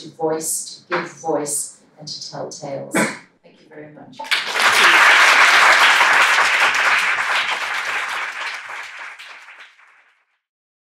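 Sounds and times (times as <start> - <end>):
audience applause: 4.2 - 10.2.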